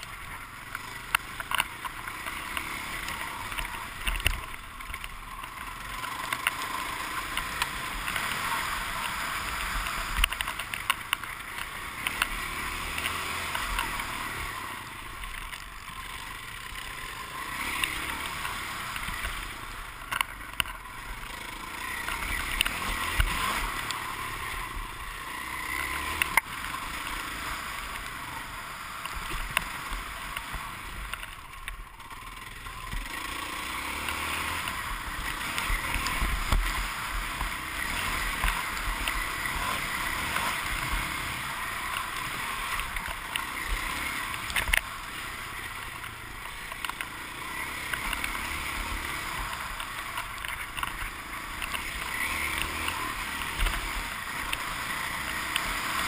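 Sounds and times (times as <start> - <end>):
dirt bike engine: 0.0 - 56.0.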